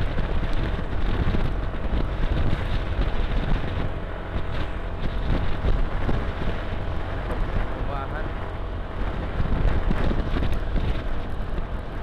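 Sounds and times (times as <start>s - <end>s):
road noise: 0.0s - 12.0s
wind buffeting microphone: 0.0s - 12.0s.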